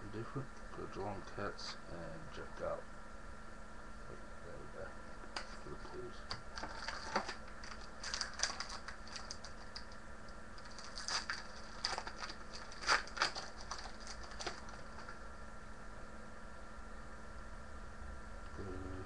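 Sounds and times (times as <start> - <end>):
faint steady hum: 0.0 - 19.0
card wrappers crinkling and clicking: 6.3 - 15.2.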